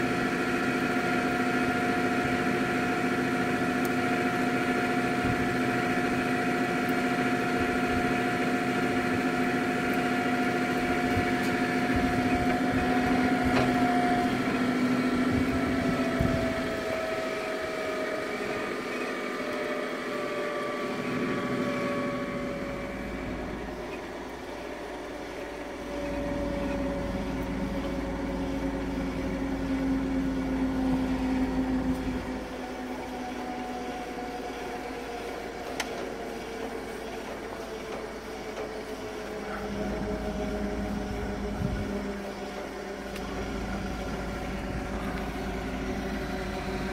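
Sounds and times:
deeper hum: 0:00.0 - 0:46.9
mixer machine hum and whine: 0:00.0 - 0:46.9.

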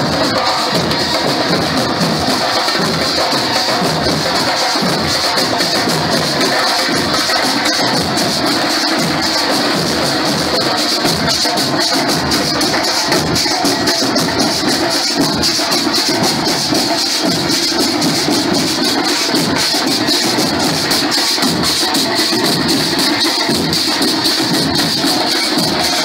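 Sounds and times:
marching drum line cadence: 0:00.0 - 0:26.0
snare drums rattling: 0:00.0 - 0:26.0.

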